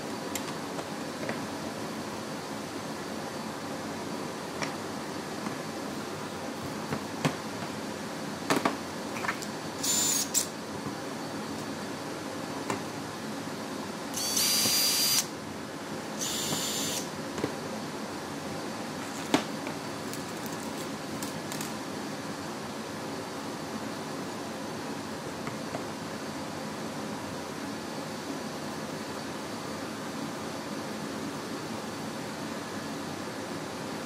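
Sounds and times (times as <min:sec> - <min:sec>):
cordless drill whining: 0:09.8 - 0:10.4, 0:14.2 - 0:15.3, 0:16.2 - 0:17.1.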